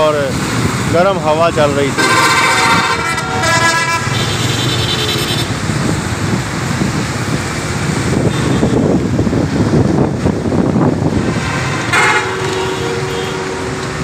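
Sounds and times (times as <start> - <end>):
traffic engines rumbling: 0.0 - 14.0
tyres hissing on wet road: 0.0 - 14.0
higher-pitched horn: 1.9 - 5.5, 11.6 - 13.8
vehicle horn: 1.9 - 5.6, 8.3 - 8.8, 11.6 - 13.8.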